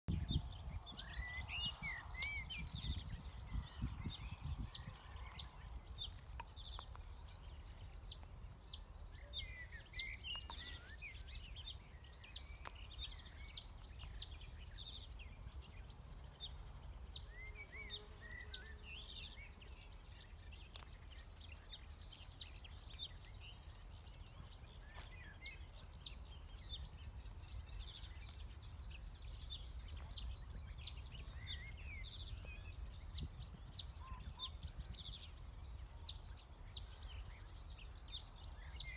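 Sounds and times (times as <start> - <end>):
songbird chirping: 0.1 - 38.9
faint bird calls: 9.4 - 11.6.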